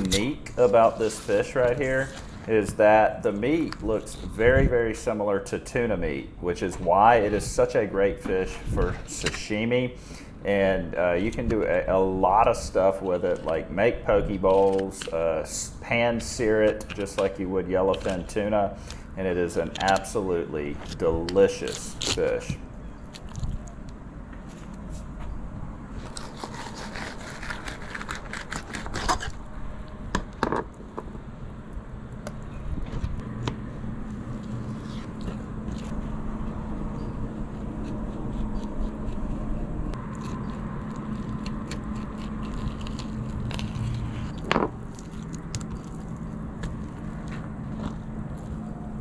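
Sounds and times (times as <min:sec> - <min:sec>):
steady low hum: 0:00.0 - 0:49.0
knife scraping on cutting board: 0:26.0 - 0:29.4.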